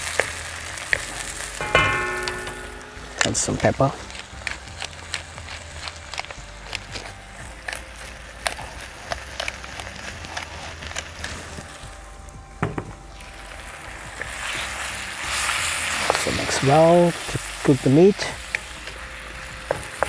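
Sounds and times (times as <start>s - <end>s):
frying sizzle from wok: 0.0s - 20.0s
low knock: 1.6s - 3.5s.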